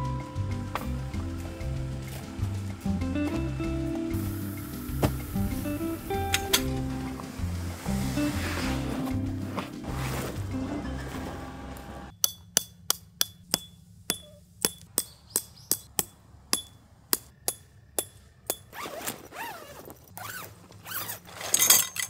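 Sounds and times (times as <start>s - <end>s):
scraping and rustling of tent gear: 4.2s - 12.1s, 18.7s - 22.0s
hammer striking metal tent pegs: 6.3s - 7.0s, 12.1s - 18.8s, 21.4s - 22.0s.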